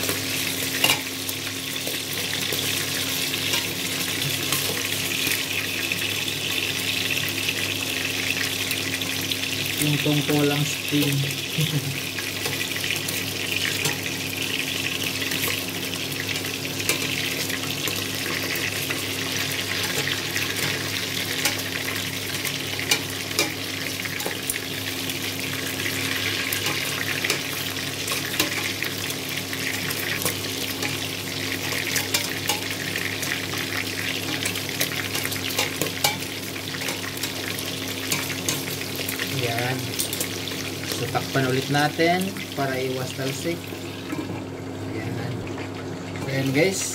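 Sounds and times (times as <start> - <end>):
meat sizzling in hot oil: 0.0 - 46.9
tongs knocking and scraping pot: 22.8 - 23.6, 34.3 - 37.4.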